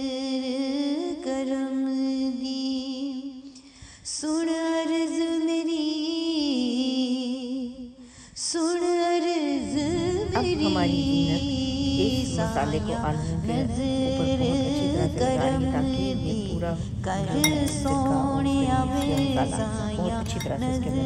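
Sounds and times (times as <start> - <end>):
woman singing long held notes: 8.5 - 21.0.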